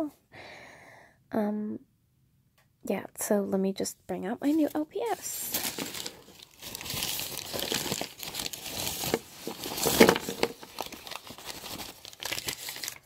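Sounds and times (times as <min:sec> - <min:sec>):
paper crinkling and rustling: 0:04.5 - 0:13.0.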